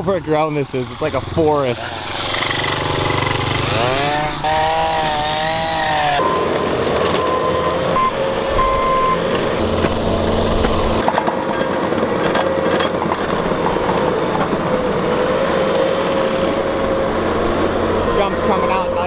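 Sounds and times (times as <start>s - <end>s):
track loader engine and hydraulics: 0.0s - 19.0s.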